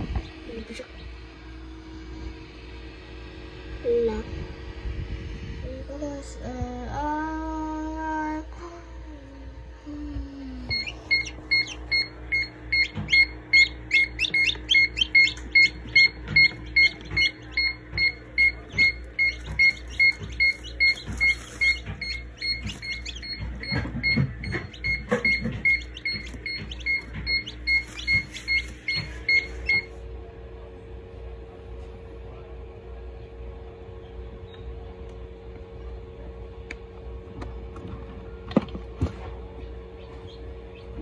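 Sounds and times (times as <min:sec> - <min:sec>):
chicks peeping: 0:10.6 - 0:29.9, 0:40.0 - 0:41.0
high repeating beep: 0:10.7 - 0:29.9.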